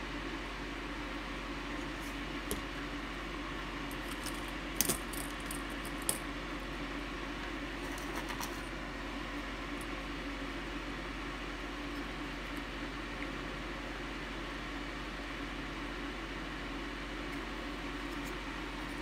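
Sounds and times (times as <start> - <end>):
steady background hum: 0.0 - 19.0
small tools clicking and clinking: 4.0 - 6.2.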